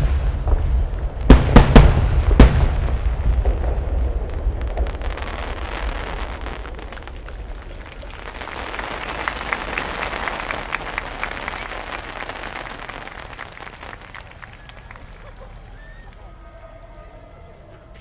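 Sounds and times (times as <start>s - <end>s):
low rumble of fireworks: 0.0s - 17.0s
spectators clapping: 6.4s - 16.3s.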